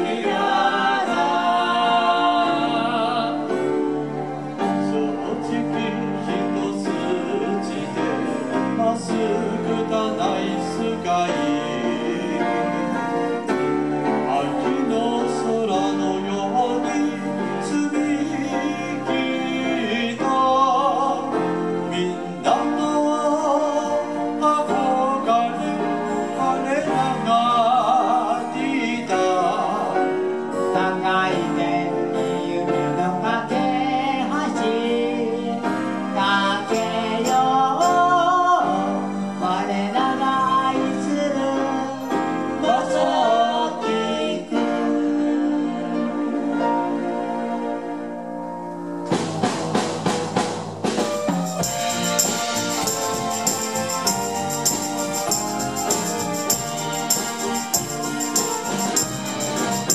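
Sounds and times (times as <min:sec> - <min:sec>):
amplified singing with vibrato: 0:00.0 - 0:49.1, 0:50.9 - 0:59.9
electronic keyboards: 0:43.1 - 0:59.9.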